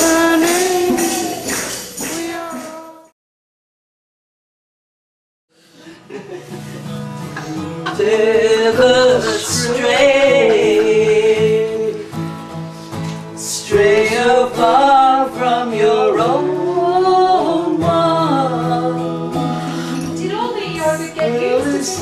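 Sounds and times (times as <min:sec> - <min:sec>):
strummed acoustic guitar: 0:00.0 - 0:03.0, 0:05.5 - 0:22.0
woman singing: 0:00.0 - 0:03.1, 0:07.9 - 0:12.0, 0:13.4 - 0:22.0.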